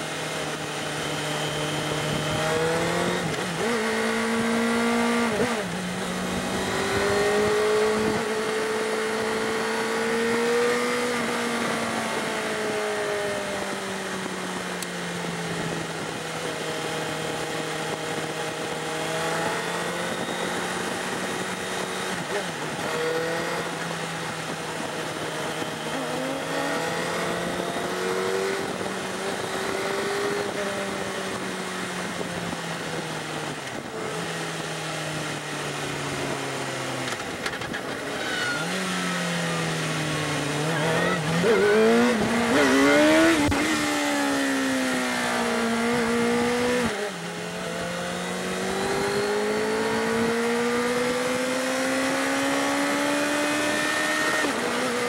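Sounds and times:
motorbike engine revving: 1.0s - 13.6s, 33.7s - 55.0s.

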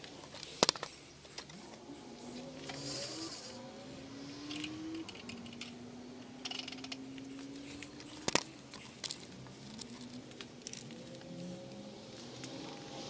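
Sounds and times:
small clicks and handling: 0.0s - 1.8s, 4.4s - 12.8s
faint hum: 0.0s - 13.0s.

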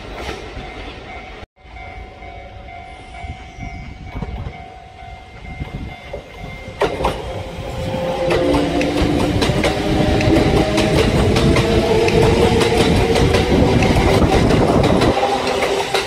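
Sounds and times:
electric train approaching: 0.0s - 16.0s
wheels clattering over rails: 8.2s - 16.0s.

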